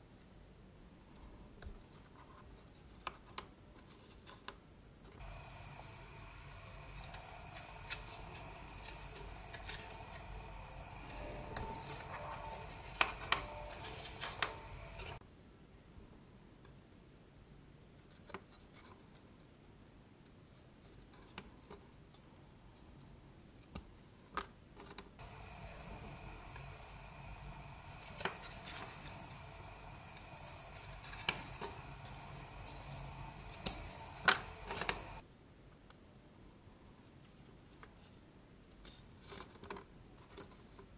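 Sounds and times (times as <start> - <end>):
needle and thread through cardboard: 1.2 - 15.2, 18.0 - 35.2
faint steady hiss: 4.9 - 24.3, 25.2 - 39.2.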